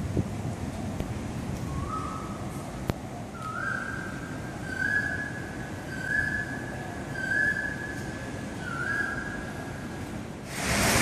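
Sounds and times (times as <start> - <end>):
steady background hiss: 0.0 - 11.0.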